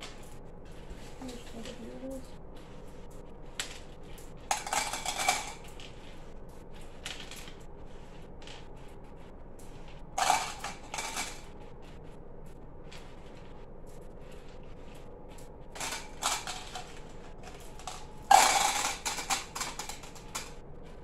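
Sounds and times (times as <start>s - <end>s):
candies rattling into cups: 4.5s - 6.0s, 10.2s - 11.5s, 15.7s - 20.6s.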